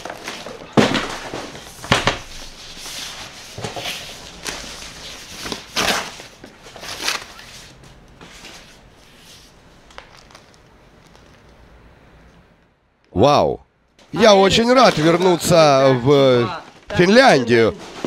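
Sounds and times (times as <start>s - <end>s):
cardboard and paper rustling: 0.0s - 11.5s, 14.7s - 15.7s, 16.6s - 18.0s.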